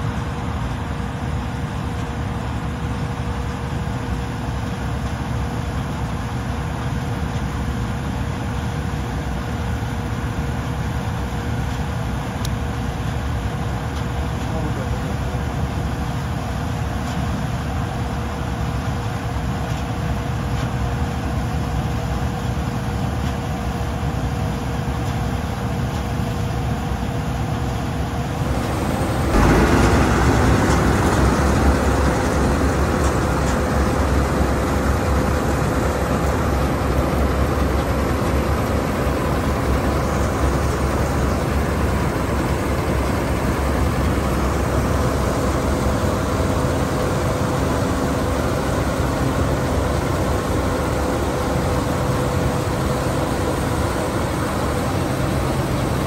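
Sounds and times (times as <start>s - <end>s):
combine harvester engine drone: 0.0s - 56.0s
machinery whine: 23.6s - 56.0s.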